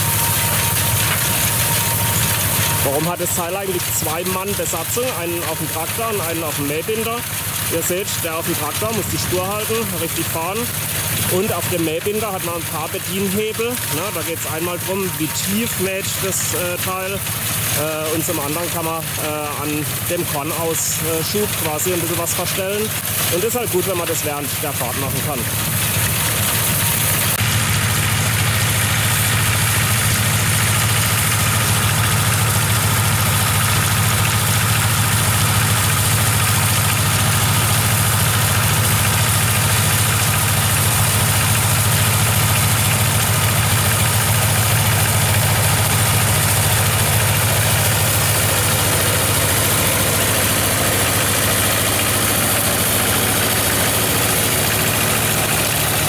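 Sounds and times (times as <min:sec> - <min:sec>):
tractor engine hum: 0:00.0 - 0:56.0.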